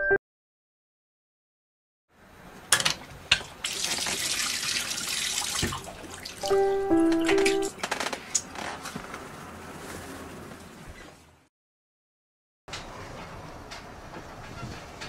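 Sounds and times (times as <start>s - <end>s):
tap running into a sink: 5.6s - 5.8s
held musical notes: 6.4s - 7.7s.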